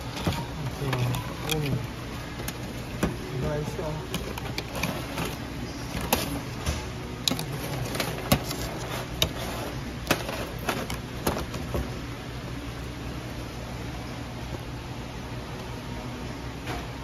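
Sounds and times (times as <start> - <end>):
crabs and tongs clacking on metal tray: 0.0 - 1.8, 6.0 - 11.6
steady low hum: 0.0 - 17.0.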